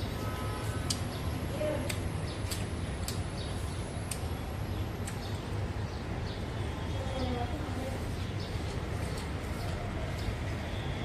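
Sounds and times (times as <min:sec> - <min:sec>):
mouth clicks and chewing smacks: 0:01.8 - 0:03.4, 0:04.0 - 0:04.4, 0:05.0 - 0:05.4.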